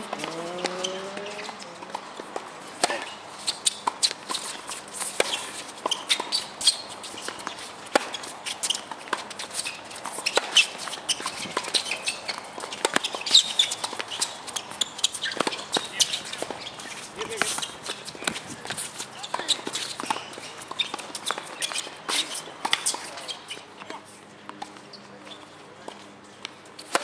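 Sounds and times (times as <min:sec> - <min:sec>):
ball bouncing: 0:00.0 - 0:03.1
rackets striking ball: 0:00.0 - 0:09.4.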